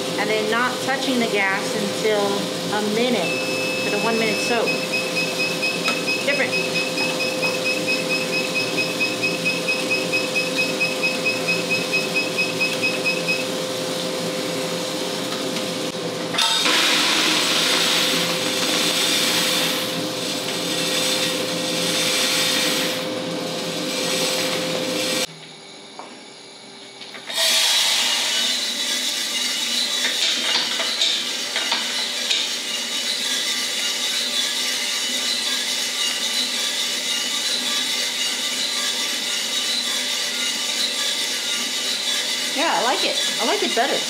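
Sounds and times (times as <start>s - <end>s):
motor hum: 0.0s - 30.2s.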